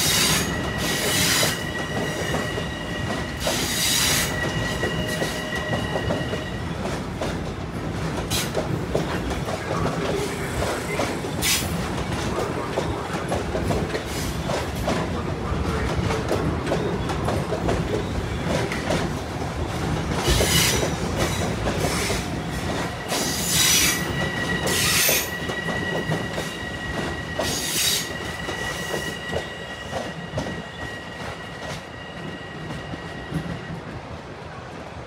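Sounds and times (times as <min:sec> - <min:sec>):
train wheels squealing: 0:00.0 - 0:06.9, 0:20.2 - 0:33.8
train rumbling over rails: 0:00.0 - 0:35.0.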